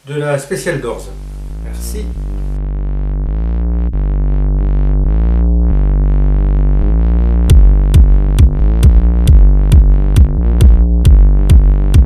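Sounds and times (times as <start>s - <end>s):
synthesizer chords: 0.6s - 12.0s
drum-machine beat: 1.2s - 4.2s, 5.0s - 12.0s.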